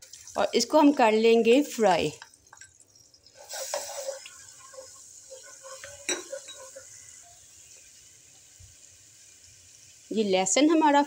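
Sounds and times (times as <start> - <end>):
garlic sizzling in hot oil: 0.0 - 11.0
spatula scraping pan: 3.2 - 7.4.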